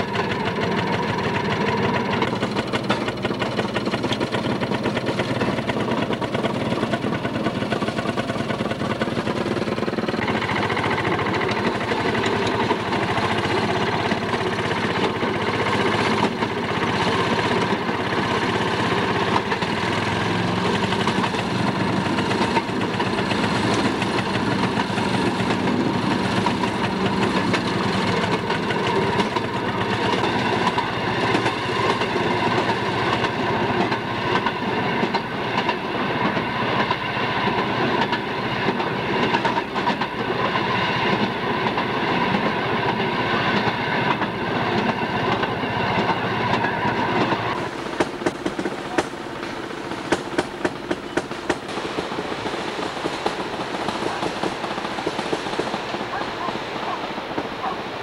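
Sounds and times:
rail motorcar clattering on rails: 0.0 - 57.8.

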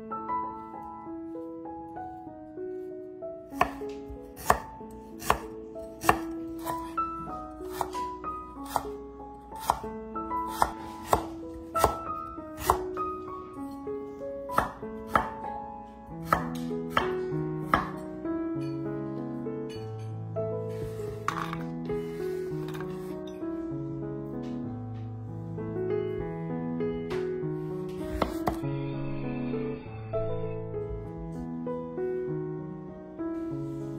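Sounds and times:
background music: 0.0 - 33.9
knife chopping on wooden board: 3.6 - 6.9, 7.7 - 9.0, 9.6 - 9.9, 10.5 - 12.0, 12.6 - 12.9, 14.5 - 15.4, 16.2 - 18.0, 28.2 - 28.6.

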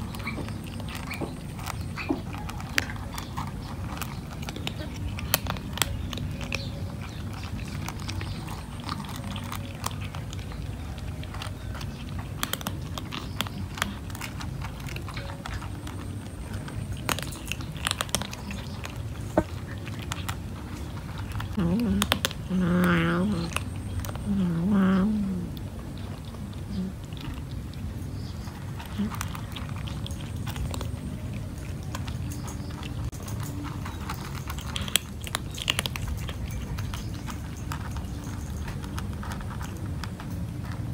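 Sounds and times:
cats crunching dry kibble: 0.0 - 40.9.

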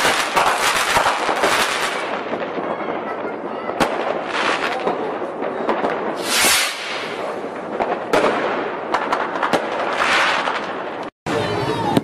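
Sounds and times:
fireworks bangs: 0.0 - 12.0
fireworks crackling: 0.0 - 12.0
fireworks hissing: 3.9 - 10.7.

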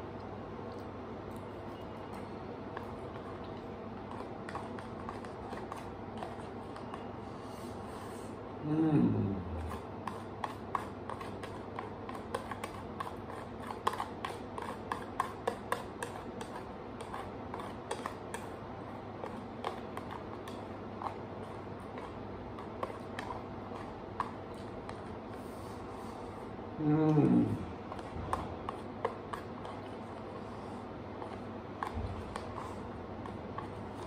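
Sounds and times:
low background hum: 0.0 - 34.0.

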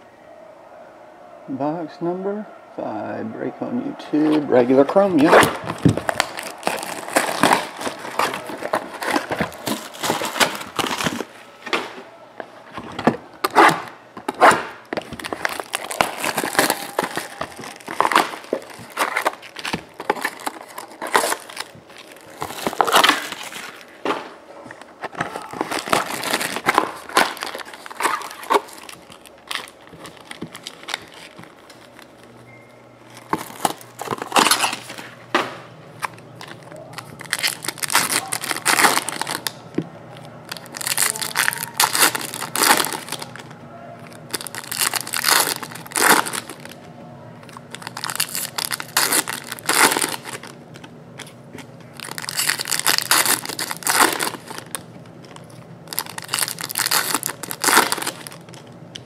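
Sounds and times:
shrink wrap crinkling: 4.5 - 59.0.

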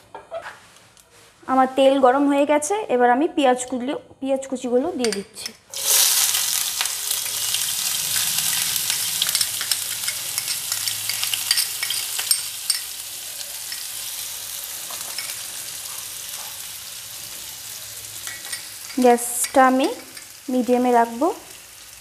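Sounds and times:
onions sizzling in hot oil: 5.7 - 22.0.

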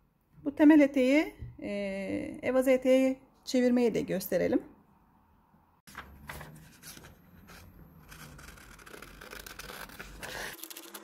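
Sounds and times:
paper crackling and rustling: 5.9 - 11.0
scissors snipping paper: 8.0 - 11.0.

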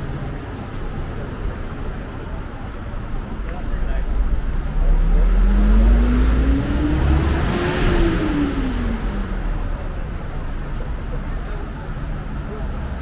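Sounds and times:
vehicle passing by: 4.5 - 9.8.

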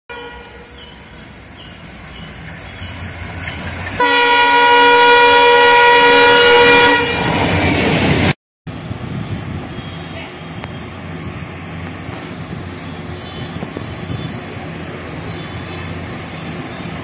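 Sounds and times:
train horn blast: 0.1 - 0.7, 4.0 - 7.4, 12.8 - 14.4
diesel locomotive engine rumble: 0.1 - 17.0
train wheel noise: 0.6 - 5.6, 7.0 - 17.0.

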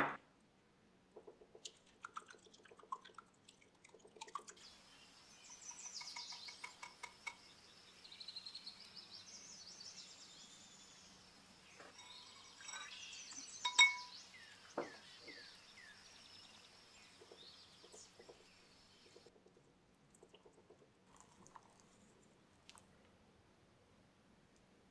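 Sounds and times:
clink on glass bowl: 12.0 - 14.2.

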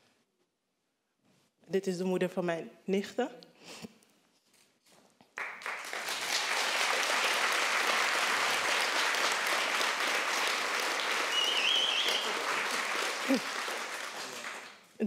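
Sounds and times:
audience applauding: 5.4 - 14.9.

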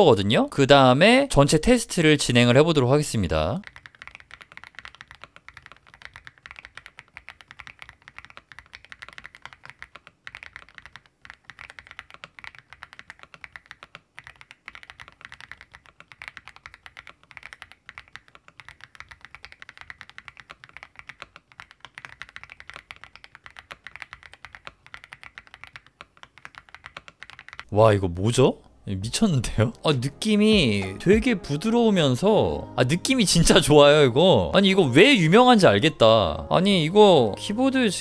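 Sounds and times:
mechanical keyboard typing: 1.4 - 27.7.

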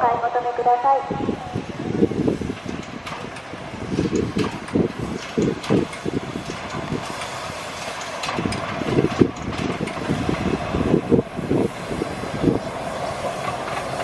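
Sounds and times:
steam locomotive hissing: 1.1 - 14.0.

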